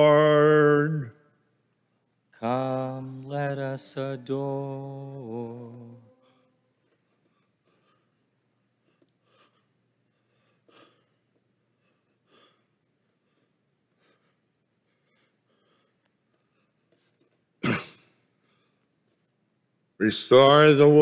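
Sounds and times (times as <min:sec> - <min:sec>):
man coughing: 0:17.6 - 0:18.3.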